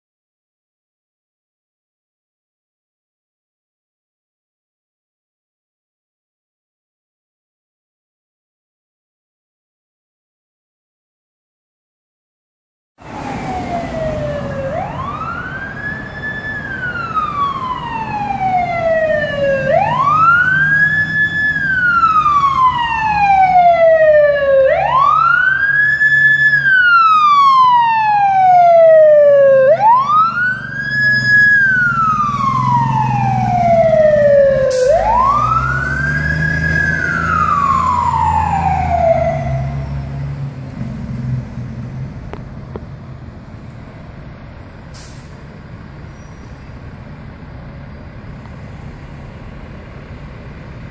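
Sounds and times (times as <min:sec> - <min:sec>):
fire engine siren wailing: 0:13.0 - 0:40.4.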